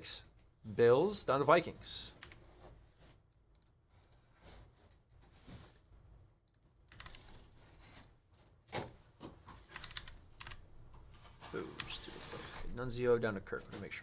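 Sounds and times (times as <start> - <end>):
keyboard typing and mouse clicks: 2.2 - 2.5, 6.4 - 7.5, 9.6 - 11.1.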